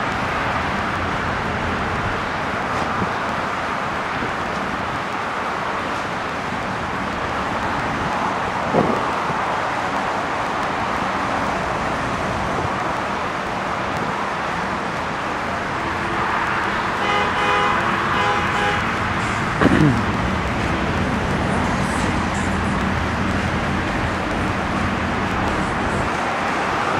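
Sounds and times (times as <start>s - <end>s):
street traffic noise: 0.0s - 26.9s
vehicle horn: 15.8s - 20.0s.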